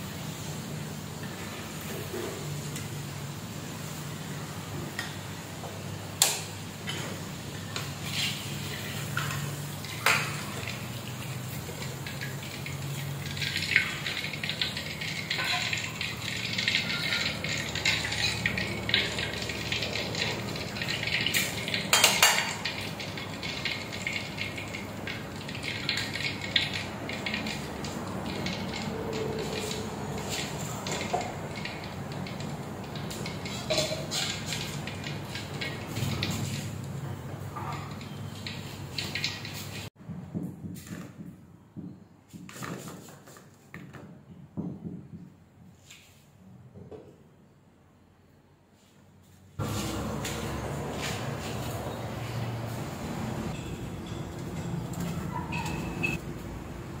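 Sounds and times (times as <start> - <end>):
oil sizzling: 0.0 - 40.0, 49.6 - 54.2
metal utensils scraping a wok: 7.7 - 10.6, 11.4 - 24.7, 25.4 - 36.7.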